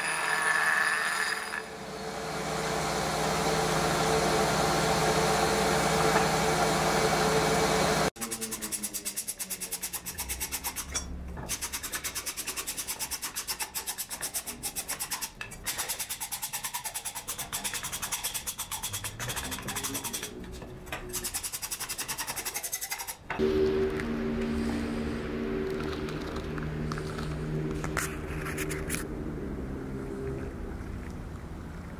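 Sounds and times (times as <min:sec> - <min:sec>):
hand rasp scraping wood: 0:11.5 - 0:20.4, 0:21.2 - 0:23.2.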